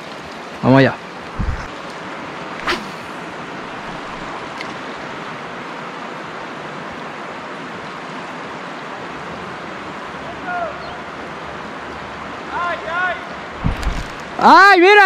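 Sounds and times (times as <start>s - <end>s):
water rushing over rocks: 0.0s - 15.0s.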